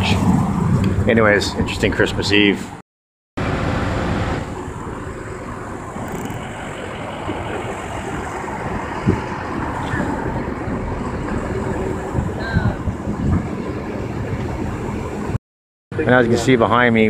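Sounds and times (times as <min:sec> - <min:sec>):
outdoor street noise: 0:00.0 - 0:02.8, 0:03.4 - 0:17.0
vehicle engine idling: 0:03.4 - 0:15.4.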